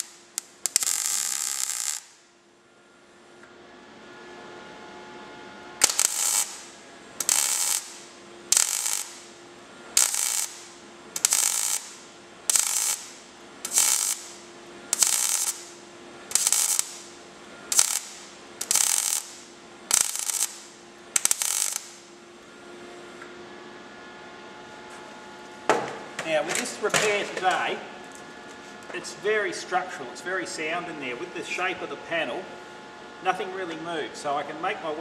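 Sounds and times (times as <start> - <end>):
welder arc crackling on sheet metal: 0.0 - 2.3, 5.8 - 22.2.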